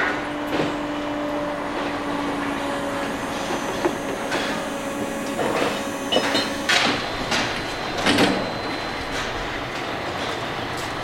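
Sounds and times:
steady machine hum: 0.0 - 11.0
steel parts clanking: 3.4 - 10.4.

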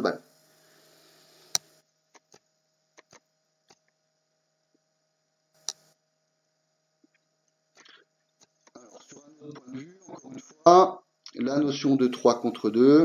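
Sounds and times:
faint steady hum: 0.0 - 13.0
sharp click: 5.6 - 5.9.

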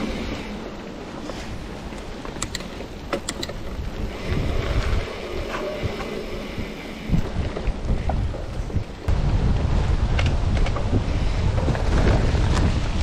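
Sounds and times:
bike clicks and rattles: 0.0 - 13.0
wind buffeting microphone: 1.5 - 13.0
tyre rumble on dirt trail: 7.1 - 13.0.

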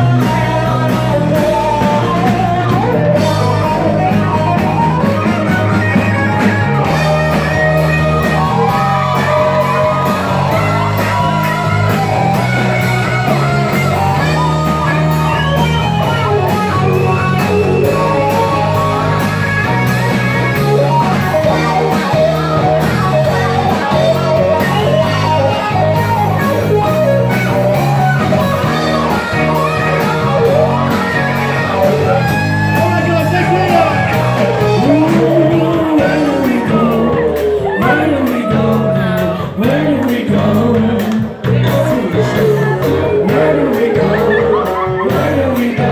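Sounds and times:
man singing: 0.0 - 4.4, 31.6 - 45.9
bass line: 0.0 - 45.9
guitar: 0.0 - 45.9
live band playing: 0.0 - 45.9.

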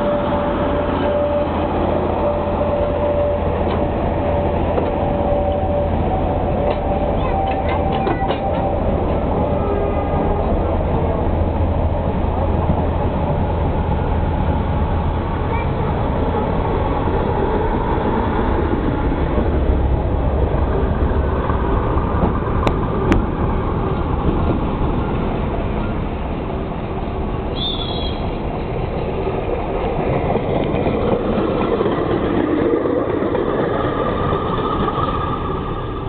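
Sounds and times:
draisine rolling on rails: 0.0 - 36.0
rail car rumbling past: 0.0 - 36.0
brief high squeak: 27.5 - 28.2.

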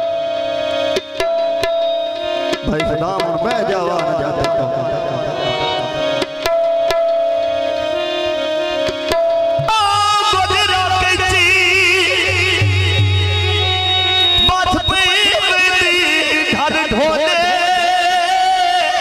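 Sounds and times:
hand drum strikes: 1.2 - 1.9, 6.2 - 7.2
person singing with vibrato: 9.7 - 19.0.

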